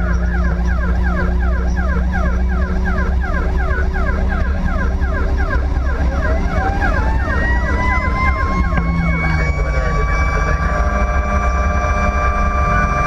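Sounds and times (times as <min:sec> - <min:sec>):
engine drone: 0:00.0 - 0:13.0
siren on fast yelp: 0:00.0 - 0:13.0
siren slow rising wail: 0:00.0 - 0:13.0.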